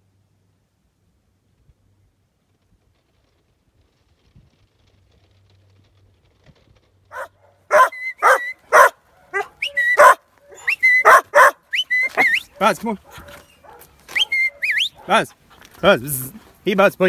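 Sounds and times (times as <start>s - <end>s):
dog barking sharply: 7.1s - 15.3s.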